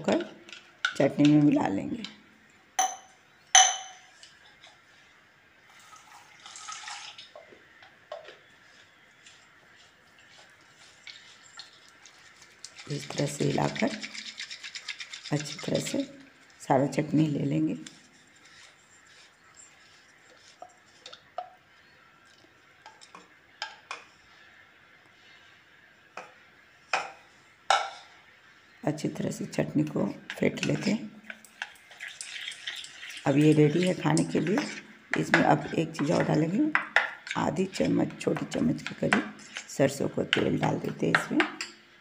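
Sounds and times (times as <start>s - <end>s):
ringing metallic clink: 2.8s - 4.0s
water swishing in a jar: 10.8s - 16.7s, 30.6s - 36.6s.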